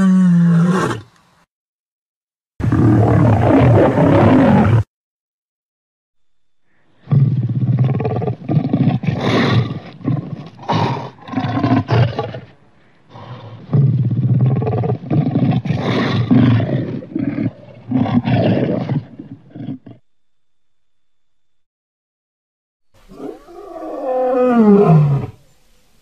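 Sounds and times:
big cat roaring: 2.6 - 4.8, 7.0 - 12.5, 13.1 - 20.0, 23.1 - 25.4.

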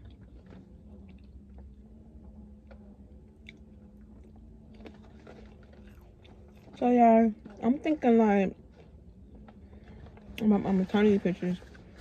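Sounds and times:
chewing french fries: 0.0 - 7.6
low hum: 0.0 - 12.0.

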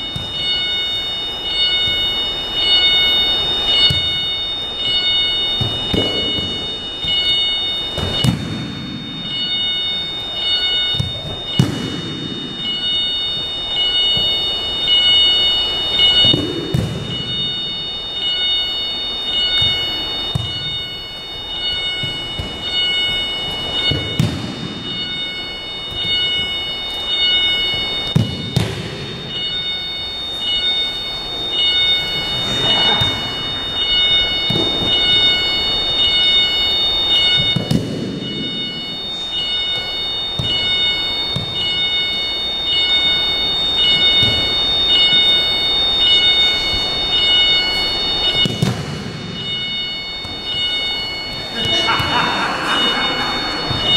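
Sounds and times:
footsteps and cloth rustling: 18.9 - 39.0.

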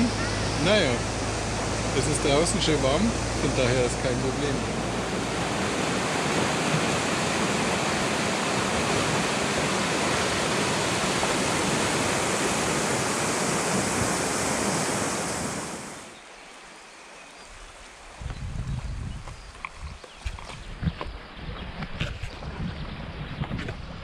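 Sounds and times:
whitewater rushing over riverbed: 0.0 - 16.2.

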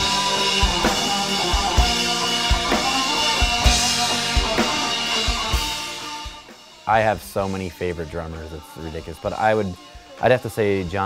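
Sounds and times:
bass drum beats: 0.0 - 7.5
sustained band chords: 0.0 - 11.0.

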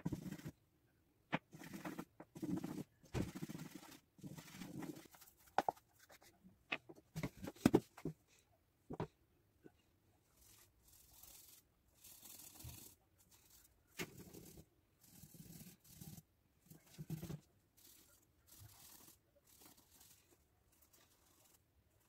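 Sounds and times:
scratchy rubbing strokes: 10.3 - 22.0.

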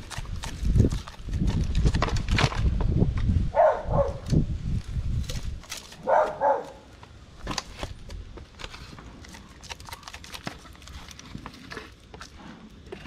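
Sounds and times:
dog barking: 3.5 - 4.2, 6.0 - 6.9.

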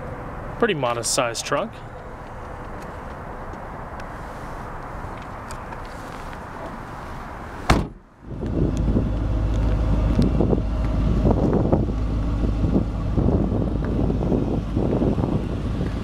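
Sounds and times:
car trunk lid slamming: 7.6 - 8.0
wind buffeting microphone: 8.2 - 16.0.

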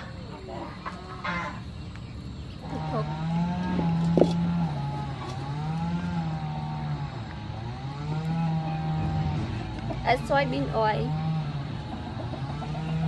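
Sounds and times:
engine droning: 0.0 - 13.0.

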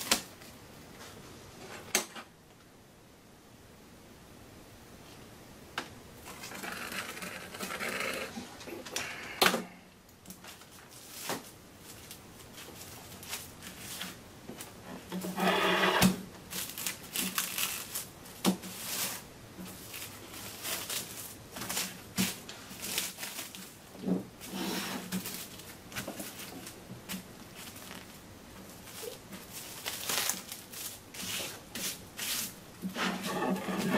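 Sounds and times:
plastic film crinkling: 10.2 - 14.8, 16.5 - 32.6.

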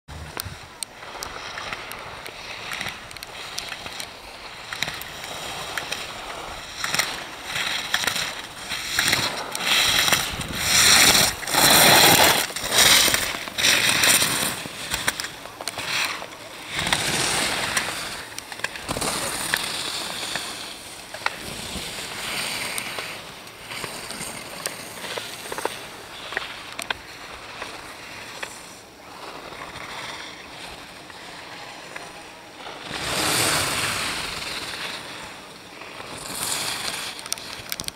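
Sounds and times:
skis scraping on hard snow: 0.1 - 37.9.

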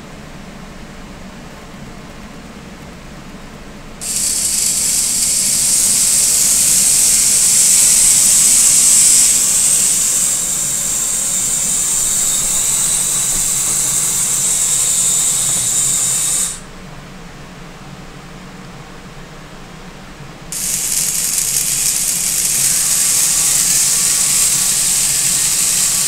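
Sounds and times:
robot arm motors whirring: 4.0 - 16.6, 20.6 - 26.0.

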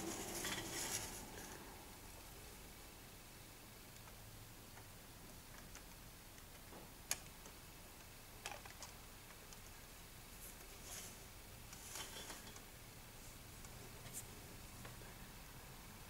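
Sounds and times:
soft brushing: 0.0 - 1.6, 10.3 - 12.6.

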